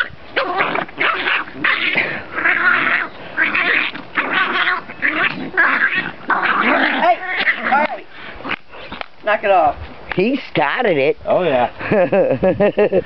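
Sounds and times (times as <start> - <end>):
puppies growling and yipping: 0.0 - 9.0.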